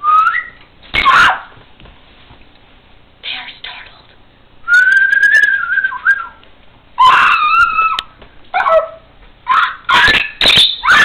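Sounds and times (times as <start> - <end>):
person whistling: 4.7 - 6.4.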